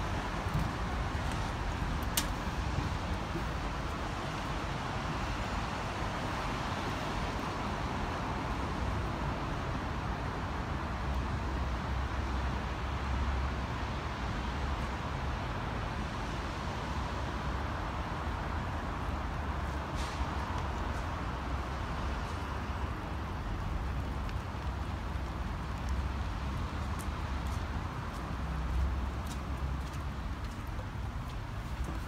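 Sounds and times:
city traffic hum: 0.0s - 32.0s.

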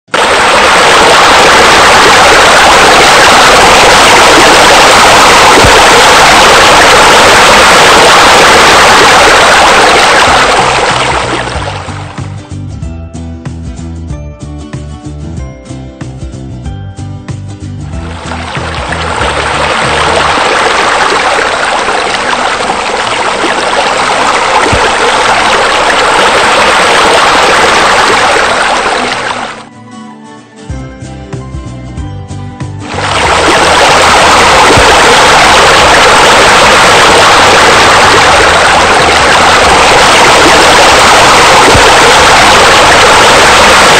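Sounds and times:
spa bubblers: 0.1s - 12.1s, 18.1s - 29.6s, 32.9s - 43.9s
water pouring into pool: 0.1s - 12.2s, 18.0s - 29.7s, 32.8s - 43.9s
low background music: 11.2s - 20.2s, 29.7s - 33.1s.

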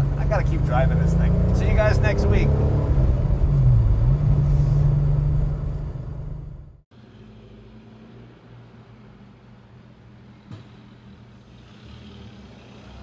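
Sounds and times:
low engine rumble: 0.0s - 6.8s
car engine driving away: 0.0s - 7.4s.

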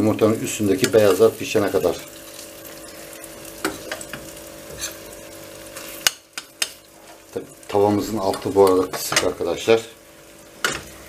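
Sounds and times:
eggs sizzling in a pan: 0.0s - 11.0s
metal spoon clicking on pan: 6.0s - 6.8s.

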